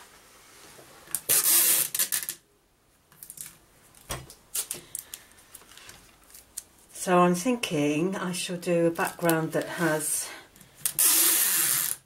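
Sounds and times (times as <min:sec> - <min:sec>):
tape ripping off roll: 0:01.1 - 0:02.4, 0:04.2 - 0:05.0, 0:10.8 - 0:12.0.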